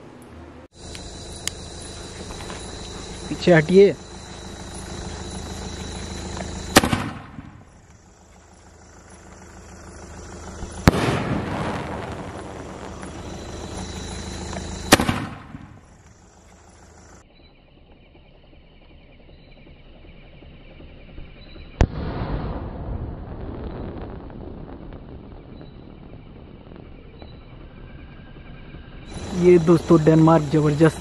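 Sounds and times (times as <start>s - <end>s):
firework shell bangs: 4.8s - 7.9s, 10.6s - 15.8s.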